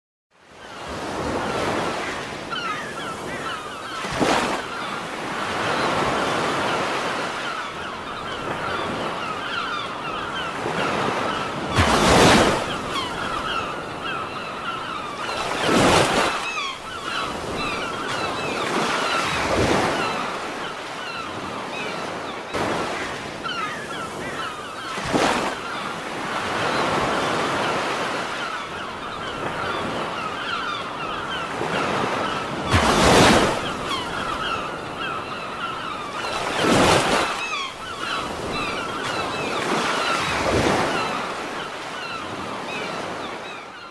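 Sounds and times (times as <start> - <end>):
waves crashing: 0.8 - 43.6.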